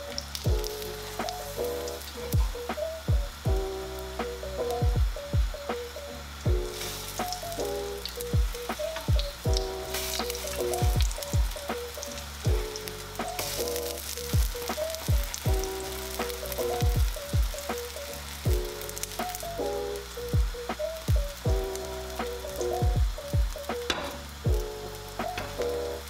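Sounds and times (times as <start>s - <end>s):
batter sizzling in frying pan: 0.0s - 26.0s
lo-fi music with kick drum: 0.0s - 26.0s
spatula turning pancakes: 6.6s - 21.2s, 23.6s - 26.0s.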